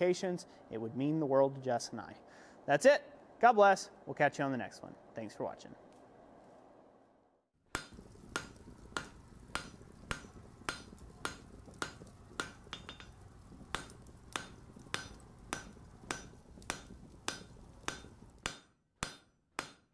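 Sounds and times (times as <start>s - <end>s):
hammer striking steel on anvil: 7.7s - 19.9s.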